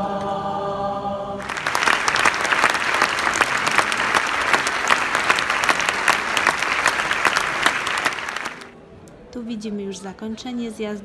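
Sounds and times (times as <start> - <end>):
audience applauding: 1.4 - 8.7.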